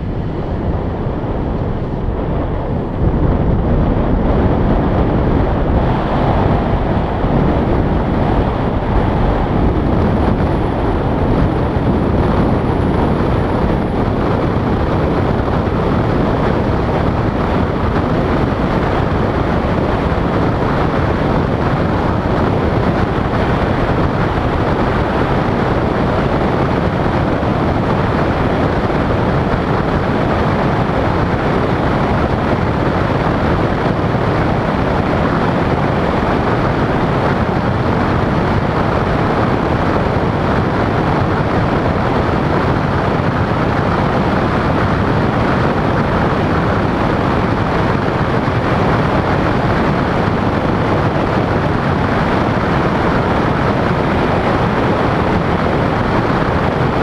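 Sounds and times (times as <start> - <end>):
wind rush: 0.0 - 57.0.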